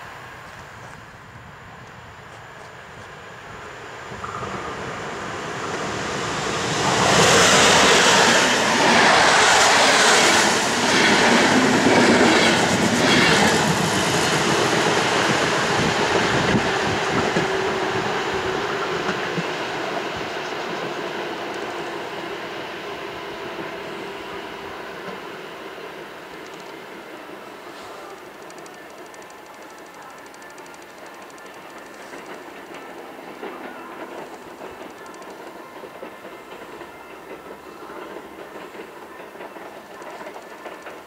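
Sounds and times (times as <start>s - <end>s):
train passing at speed: 0.0s - 41.0s
wheels clacking over rail joints: 27.7s - 41.0s.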